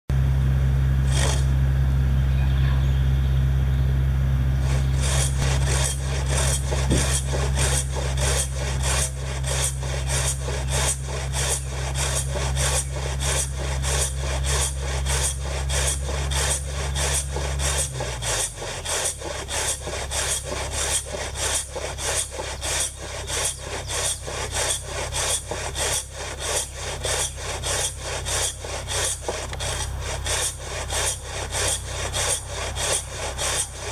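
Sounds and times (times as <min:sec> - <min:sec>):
low steady hum: 0:00.1 - 0:33.9
ripsaw rasping through wood: 0:01.1 - 0:01.5, 0:04.6 - 0:33.9.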